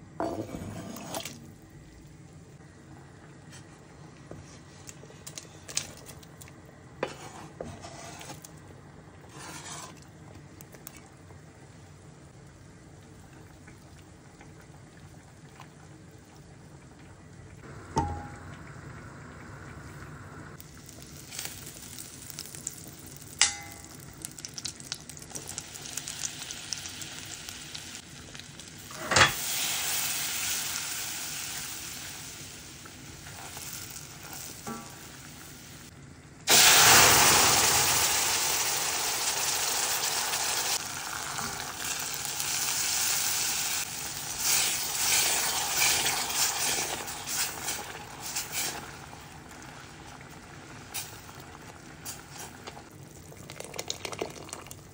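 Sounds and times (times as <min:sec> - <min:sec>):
spatula stirring roux: 0:07.0 - 0:08.4, 0:09.3 - 0:10.0
butter sizzling in a pot: 0:09.3 - 0:10.0, 0:20.6 - 0:54.7
loud sizzle of liquid added: 0:17.6 - 0:54.8.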